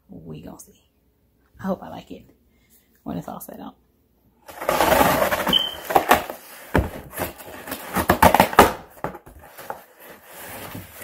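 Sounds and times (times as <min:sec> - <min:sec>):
box knocking and scraping: 0:04.5 - 0:11.0.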